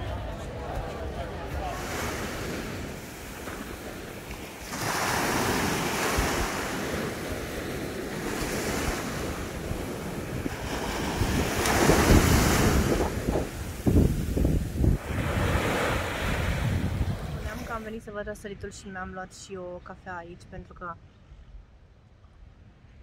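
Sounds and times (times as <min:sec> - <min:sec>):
wind rumbling on microphone: 0:00.0 - 0:18.4
sea waves breaking on beach: 0:01.0 - 0:17.8.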